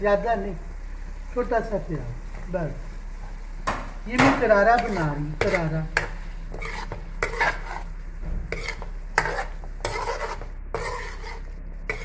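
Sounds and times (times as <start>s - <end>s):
food sizzling: 0.0s - 12.0s
metal spoon scraping a pan: 4.7s - 7.9s, 8.5s - 12.0s.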